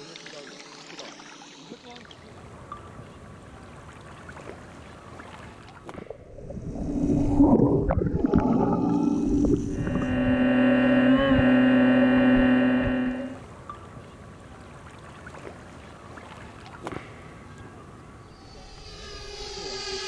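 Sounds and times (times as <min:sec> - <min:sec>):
water sloshing and gurgling: 0:00.0 - 0:18.4
underwater rumble: 0:06.0 - 0:13.4
steady low hum: 0:06.1 - 0:13.6.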